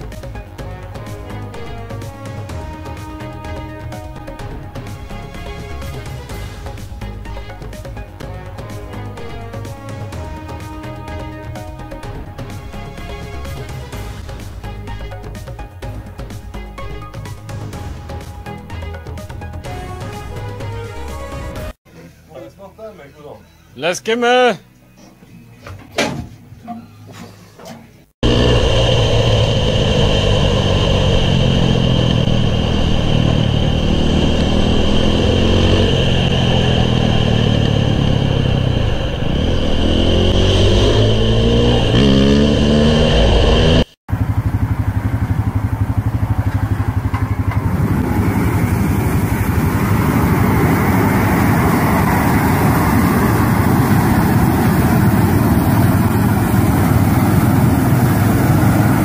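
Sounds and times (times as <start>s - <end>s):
dirt bike engine revving: 28.2s - 59.0s
rushing noise of burners: 28.2s - 59.0s
tractor engine running: 28.2s - 59.0s.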